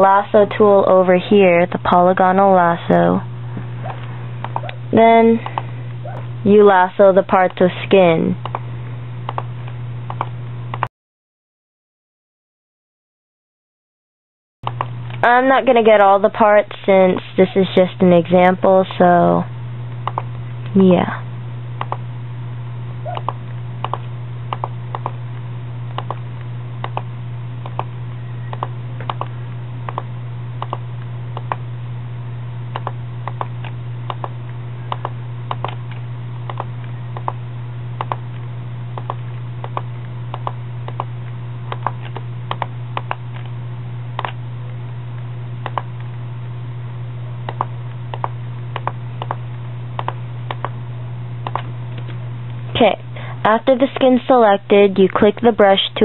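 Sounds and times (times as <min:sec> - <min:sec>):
low hum: 0:00.0 - 0:10.9, 0:14.6 - 0:56.0
computer mouse clicking: 0:08.4 - 0:08.6, 0:09.3 - 0:09.5, 0:10.1 - 0:10.9, 0:20.0 - 0:20.3, 0:21.8 - 0:22.0, 0:23.1 - 0:25.2, 0:25.9 - 0:26.2, 0:26.8 - 0:27.9, 0:28.5 - 0:29.3, 0:29.9 - 0:30.8, 0:31.4 - 0:31.6, 0:32.8 - 0:34.3, 0:34.9 - 0:37.4, 0:38.0 - 0:38.2, 0:39.0 - 0:41.1, 0:41.7 - 0:43.4, 0:44.2 - 0:44.4, 0:45.6 - 0:45.9, 0:47.5 - 0:49.4, 0:50.0 - 0:50.7, 0:51.4 - 0:51.7.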